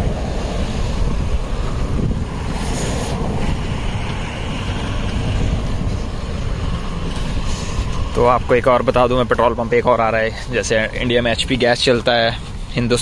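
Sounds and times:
wind rumbling on microphone: 0.0 - 11.7
street traffic: 0.0 - 13.0.

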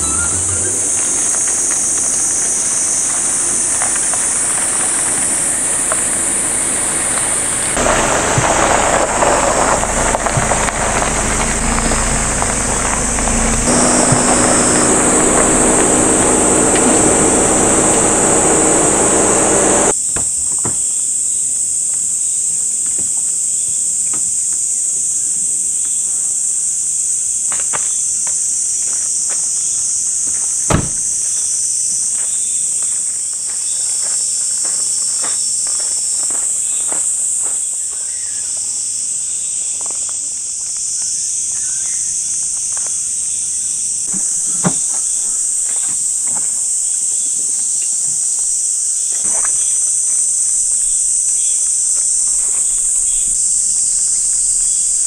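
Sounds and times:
insect chorus: 0.0 - 20.0, 20.6 - 55.0
vehicle engine: 0.0 - 20.0, 50.5 - 55.0
steps on gravel: 7.0 - 19.9, 32.2 - 38.0
sharp thumps: 9.8 - 19.9.

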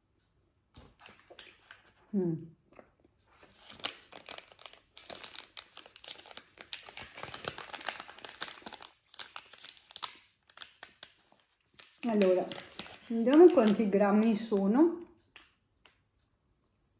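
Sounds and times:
plastic wrapper crinkling: 3.3 - 14.6.

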